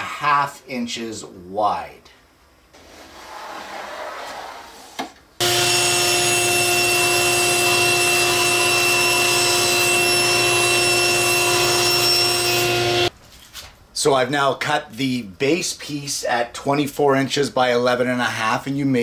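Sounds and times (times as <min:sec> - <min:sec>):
soft noise: 0:02.7 - 0:05.4
power saw cutting plywood: 0:05.4 - 0:13.1.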